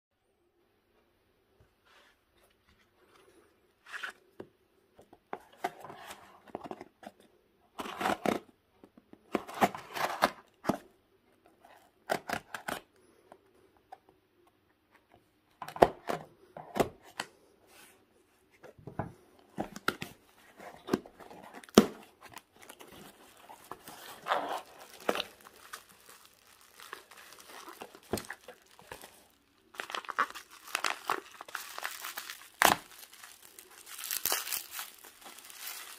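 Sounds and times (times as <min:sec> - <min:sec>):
bubble wrap and plastic crinkling: 0:19.7 - 0:35.9
packing tape slit and torn: 0:31.8 - 0:33.2.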